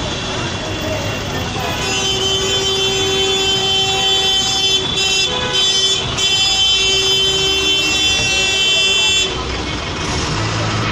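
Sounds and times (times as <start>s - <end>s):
street traffic noise: 0.0s - 10.9s
vehicle horn blasts: 1.7s - 9.4s.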